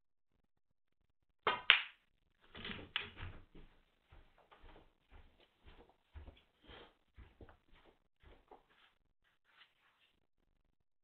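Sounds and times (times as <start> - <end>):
muffled footsteps: 2.4 - 10.2.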